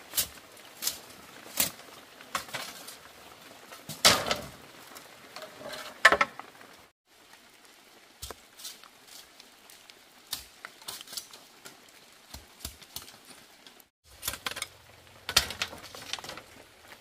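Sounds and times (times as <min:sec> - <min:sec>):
bamboo poles knocking: 0:05.4 - 0:06.4.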